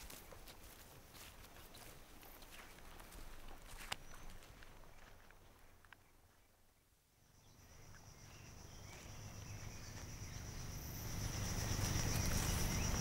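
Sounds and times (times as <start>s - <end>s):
insects chirring: 7.1s - 13.0s.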